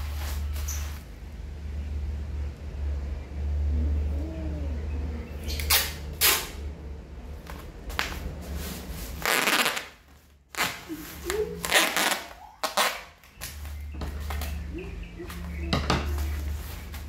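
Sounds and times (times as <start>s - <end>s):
low steady hum: 0.0s - 9.3s
packing tape tearing off roll: 9.2s - 13.6s.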